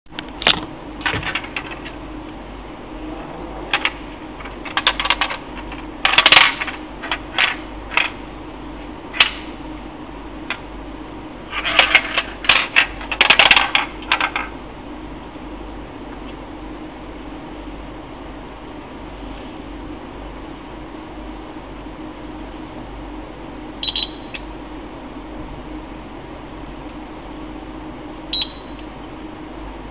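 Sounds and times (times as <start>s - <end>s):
steel balls rolling and clicking: 3.7s - 8.2s, 11.5s - 14.5s.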